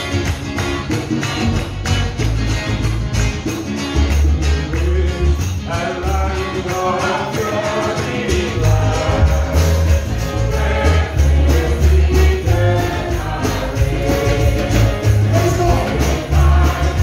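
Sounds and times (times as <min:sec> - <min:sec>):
gospel singers: 0:04.8 - 0:17.0.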